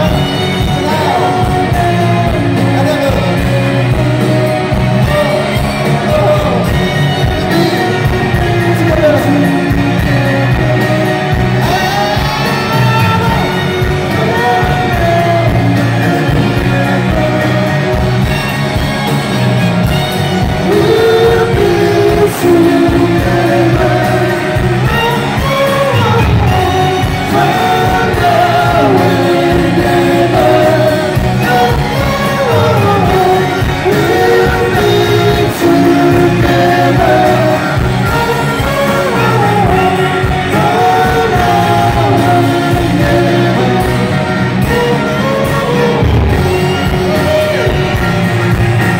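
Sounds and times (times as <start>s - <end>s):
person singing: 0.0s - 48.9s
rock band playing live: 0.0s - 48.9s.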